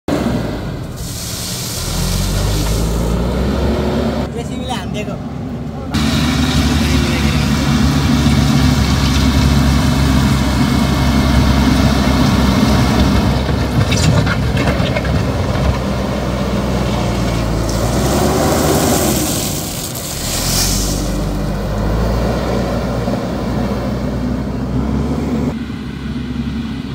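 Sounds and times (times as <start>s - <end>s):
bucket pushing gravel: 0.9s - 3.3s, 17.0s - 21.7s
diesel engine running hard: 5.2s - 26.9s.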